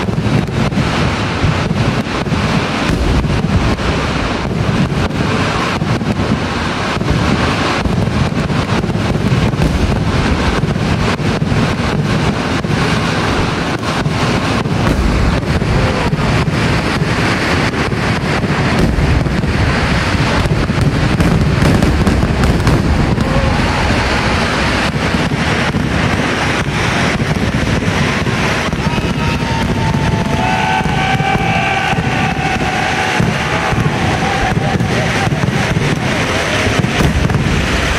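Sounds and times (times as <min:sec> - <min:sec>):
fireworks explosions rumbling: 0:00.0 - 0:37.9
sharp firework cracks: 0:00.0 - 0:37.9.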